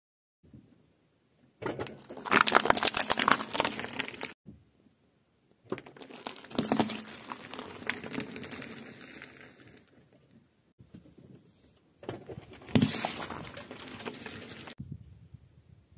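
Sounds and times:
plastic cracking under tyre: 0:01.6 - 0:04.4, 0:05.7 - 0:09.8, 0:12.1 - 0:14.7
fruit squashing: 0:01.8 - 0:04.3
metal cups crumpling: 0:06.0 - 0:09.6, 0:12.7 - 0:14.8.

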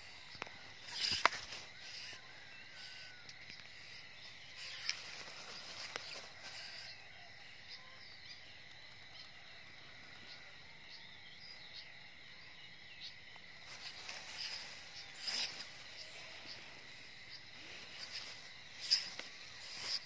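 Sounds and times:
night insects trilling: 0:00.0 - 0:20.0
rustling through grass: 0:04.6 - 0:06.8, 0:13.6 - 0:20.0.

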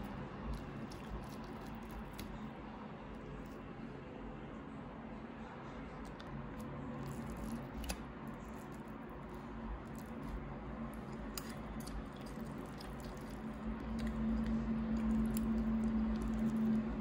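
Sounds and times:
steady low hum: 0:00.0 - 0:17.0
fish flesh flaking: 0:00.4 - 0:02.4.

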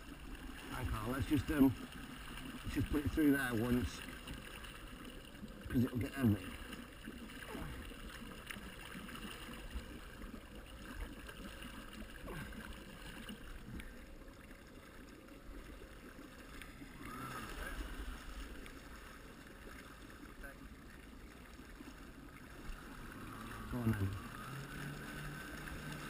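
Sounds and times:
water churning: 0:00.0 - 0:26.0
jet ski engine rumble: 0:22.4 - 0:26.0.

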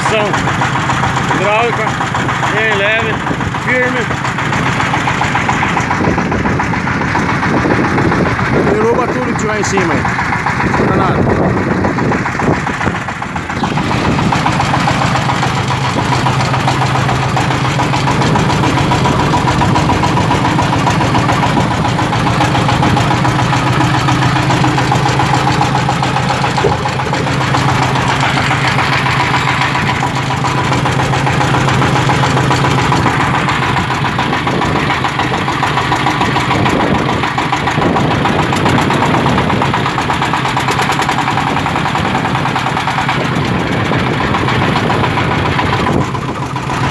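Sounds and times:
diesel engine running: 0:00.0 - 0:46.9.

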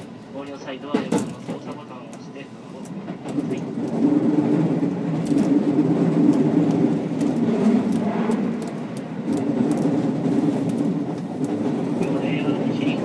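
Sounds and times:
train wheels rumbling: 0:00.0 - 0:13.0.

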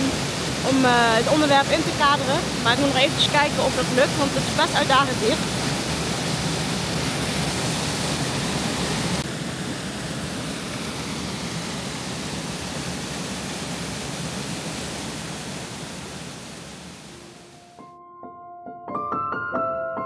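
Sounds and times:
waterfall pouring into pool: 0:00.0 - 0:17.4.

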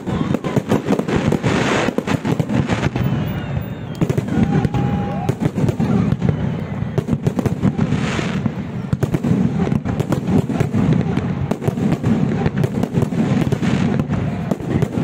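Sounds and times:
fireworks bursting and crackling: 0:00.0 - 0:15.0.

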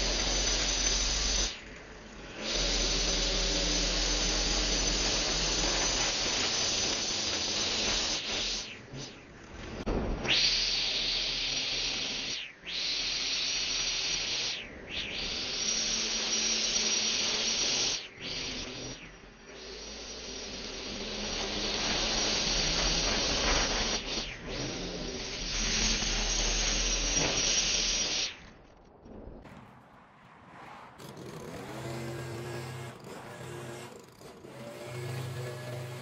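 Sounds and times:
string trimmer cutting grass: 0:02.4 - 0:08.6, 0:31.0 - 0:36.0.

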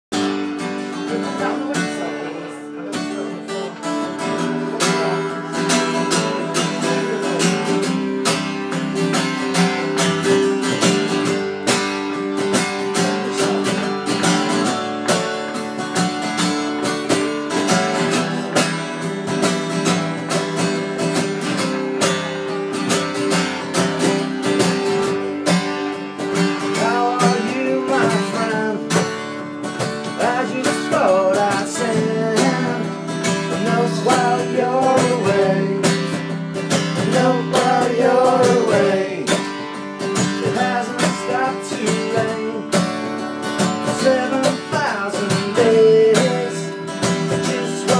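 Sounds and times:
acoustic guitar strumming: 0:00.1 - 0:47.9
man singing: 0:00.8 - 0:08.4, 0:12.6 - 0:14.8, 0:26.5 - 0:29.2, 0:29.9 - 0:43.0, 0:43.7 - 0:47.9.

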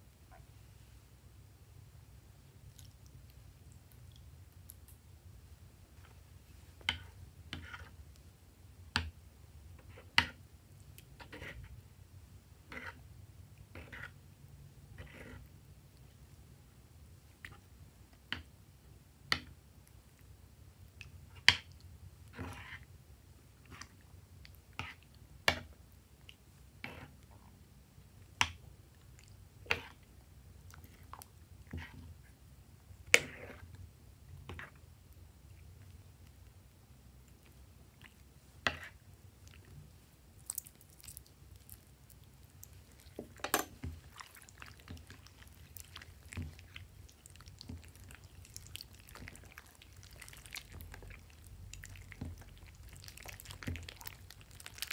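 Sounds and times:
slime squishing: 0:40.3 - 0:54.9.

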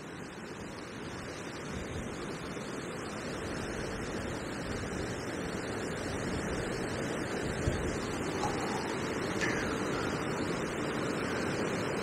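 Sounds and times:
gusty wind buffeting microphone: 0:03.6 - 0:11.8.

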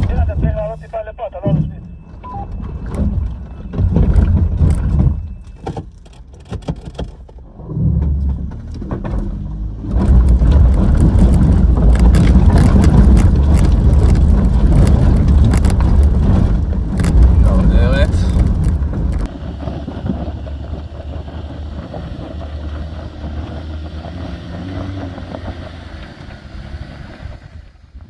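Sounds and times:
off-road vehicle engine under load: 0:00.0 - 0:28.0
stones crunching under tyres: 0:08.2 - 0:28.0.

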